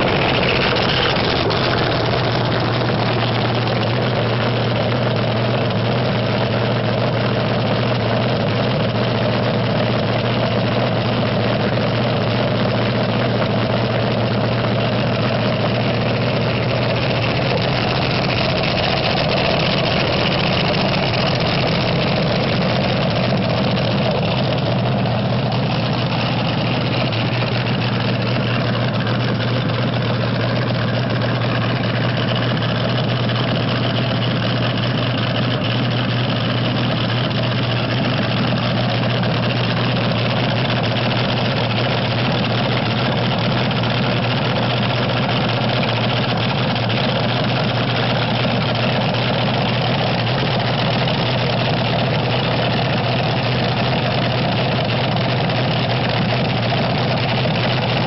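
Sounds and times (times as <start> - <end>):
dragster engine idling: 0.0 - 58.0.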